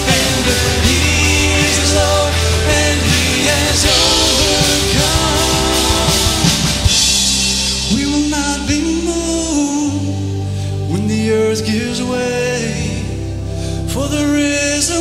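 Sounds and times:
people singing: 0.0 - 10.0
rock band playing: 0.0 - 13.8.

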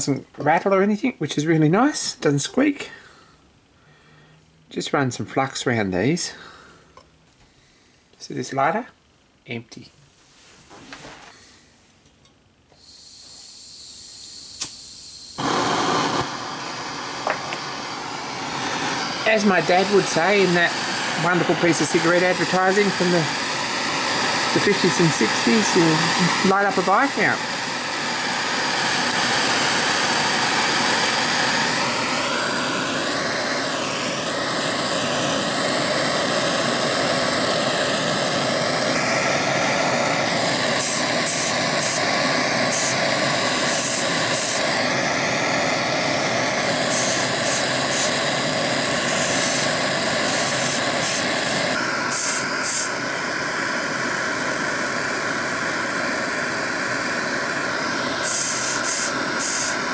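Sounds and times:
gas torch hissing: 12.7 - 59.9.

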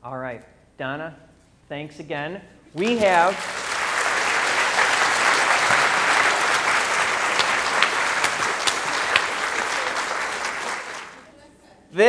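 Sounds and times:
sharp single claps: 2.8 - 11.2
audience applauding: 2.8 - 11.3.

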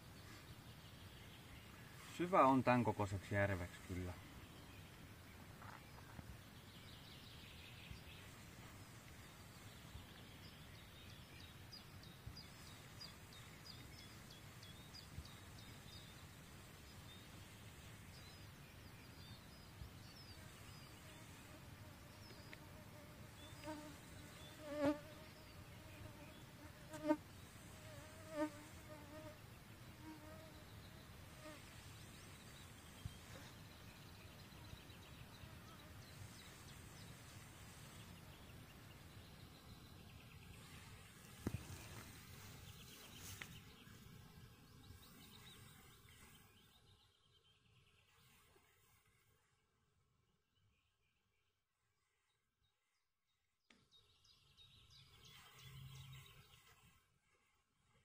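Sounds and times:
quiet lakeside ambience: 0.0 - 58.0
insect buzzing: 20.4 - 30.6.

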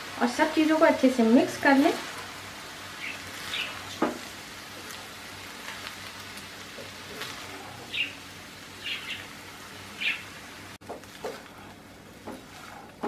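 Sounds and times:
faint sizzle: 0.0 - 13.0
spatula stirring rice in pan: 1.6 - 7.9, 10.8 - 13.0
spatula scraping pan: 6.7 - 7.9, 10.9 - 13.0.

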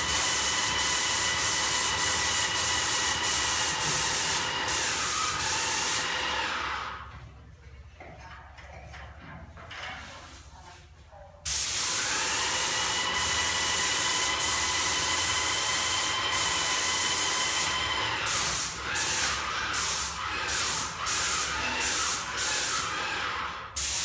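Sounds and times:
paint sprayer hissing: 0.0 - 6.3, 11.5 - 23.0, 23.7 - 24.0.

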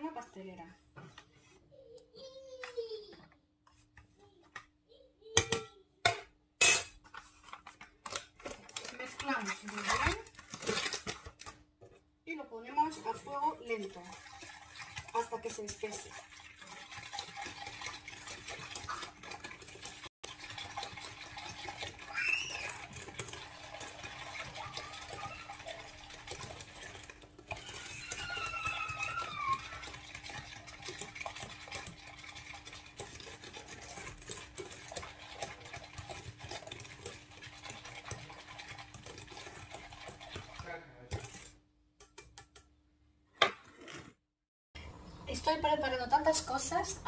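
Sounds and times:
whisk scraping metal saucepan: 6.6 - 11.4, 12.8 - 42.3.

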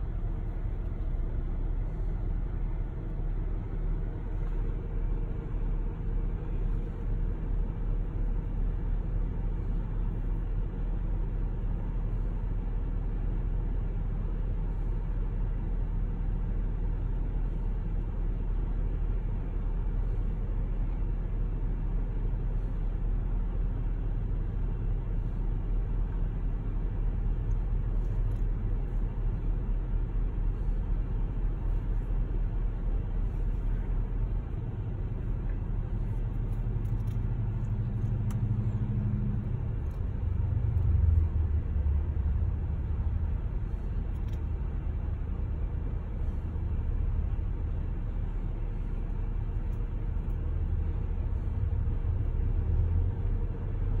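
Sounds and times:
car engine rumble from inside: 0.0 - 54.0
vehicles passing: 27.5 - 54.0.

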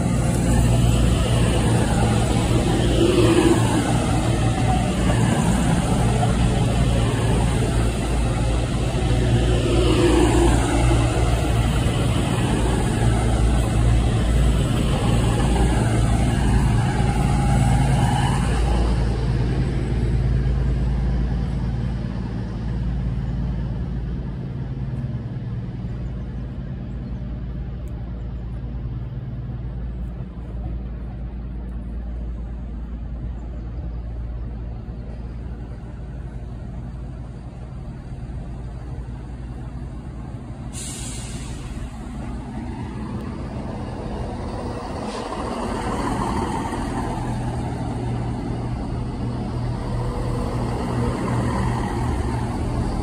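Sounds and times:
diesel train engine rumble: 0.0 - 53.0
brief hiss: 40.7 - 42.2.

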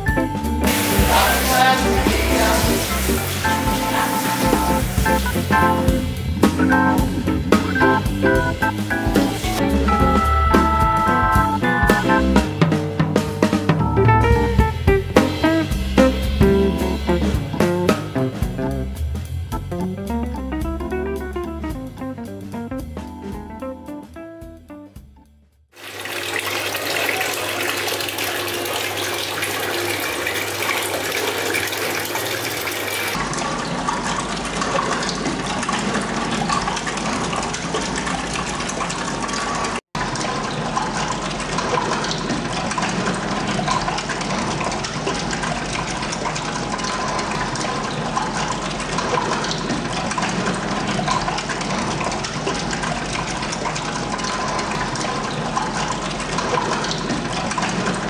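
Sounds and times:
water gushing in a bathtub: 0.6 - 6.4, 25.7 - 58.0.

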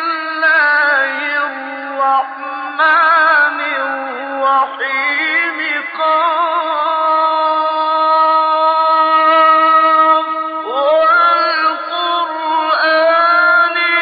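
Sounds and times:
man chanting melodically: 0.0 - 14.0.

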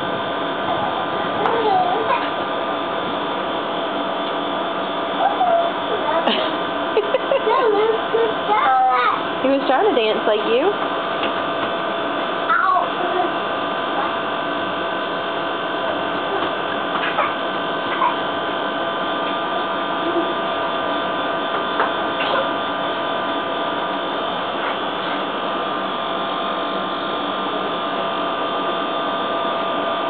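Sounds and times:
steady multi-tone hum: 0.0 - 30.0.

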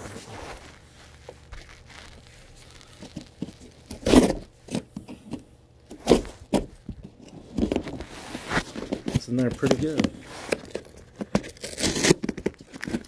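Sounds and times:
cardboard rustling: 0.0 - 5.0, 5.9 - 13.0
packing tape ripping: 1.5 - 4.9, 7.6 - 13.0.

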